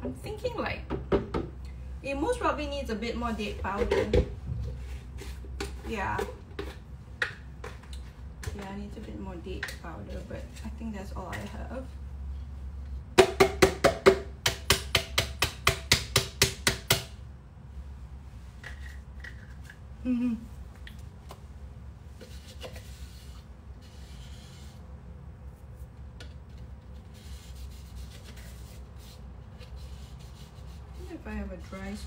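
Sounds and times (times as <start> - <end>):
faint rubbing and scraping: 22.1 - 32.0.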